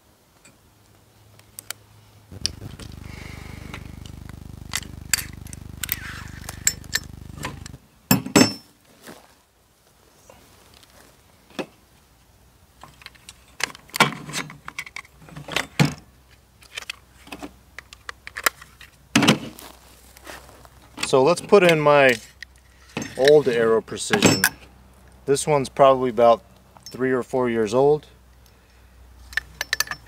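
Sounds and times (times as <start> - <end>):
low steady hum: 0.0 - 8.7
metal gun parts clicking: 29.3 - 30.0.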